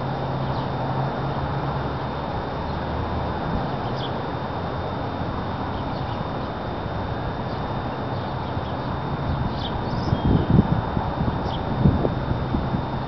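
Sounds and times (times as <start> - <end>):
wind noise on microphone: 7.0 - 13.0
faint bird chirps: 9.5 - 10.5.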